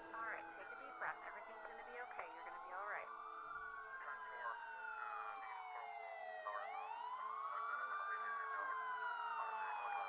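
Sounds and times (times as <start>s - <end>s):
emergency siren wailing: 0.0s - 10.0s.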